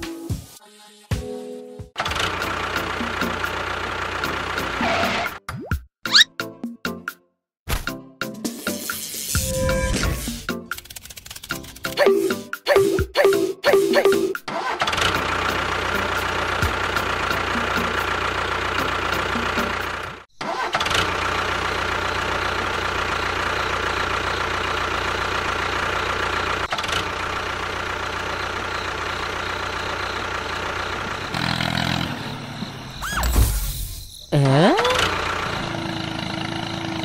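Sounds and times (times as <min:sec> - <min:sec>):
tractor motor running: 0:02.0 - 0:04.9, 0:14.5 - 0:33.0, 0:34.8 - 0:37.0.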